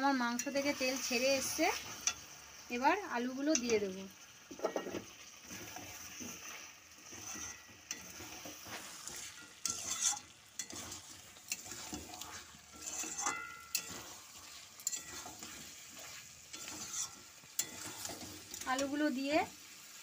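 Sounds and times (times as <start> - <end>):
food sizzling: 0.0 - 20.0
spatula scraping metal pan: 4.5 - 19.1.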